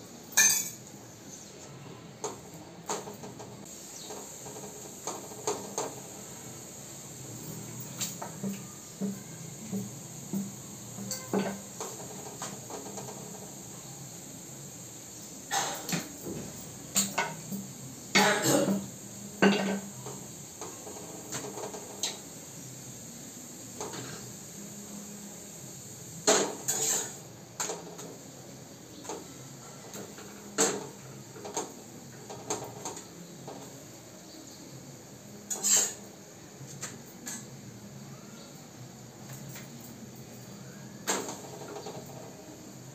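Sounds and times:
steady background hum: 0:00.0 - 0:42.9
utensils clinking on pan and plates: 0:00.3 - 0:00.9, 0:07.4 - 0:13.2, 0:15.2 - 0:22.2, 0:26.2 - 0:28.0, 0:35.5 - 0:36.1.

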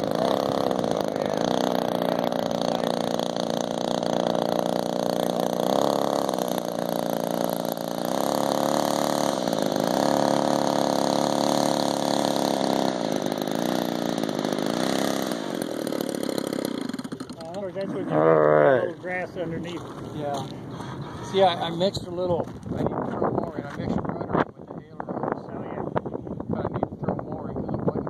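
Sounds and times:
model plane engine running: 0:00.0 - 0:19.3.

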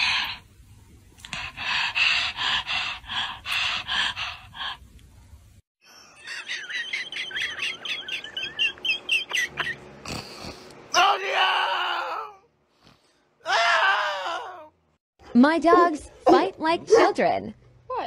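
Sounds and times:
dog panting: 0:01.2 - 0:04.8.

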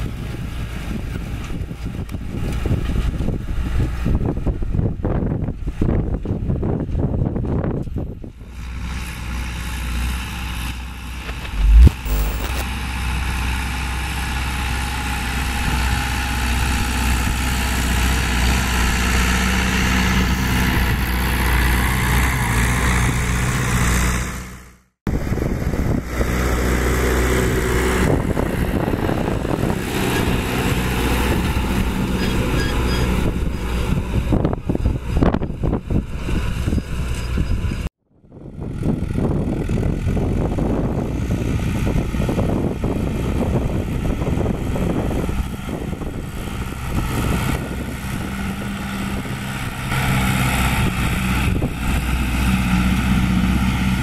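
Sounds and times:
tractor diesel engine under load: 0:08.6 - 0:37.9, 0:38.6 - 0:54.0
sharp thump: 0:11.2 - 0:12.6.

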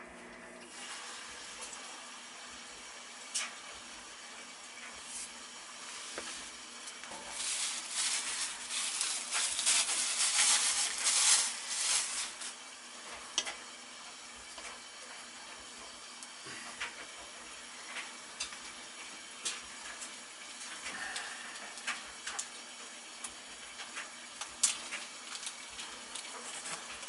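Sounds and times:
crinkly rustling: 0:06.0 - 0:12.7, 0:23.8 - 0:27.0.

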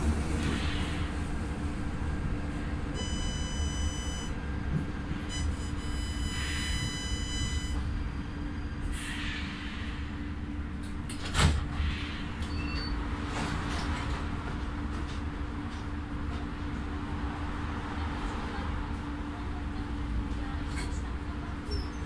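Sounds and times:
light-rail car running noise: 0:00.0 - 0:22.0.

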